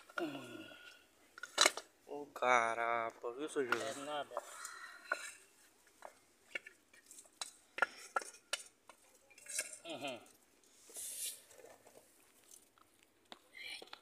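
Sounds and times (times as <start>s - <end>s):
scraping hiss: 10.7s - 11.5s.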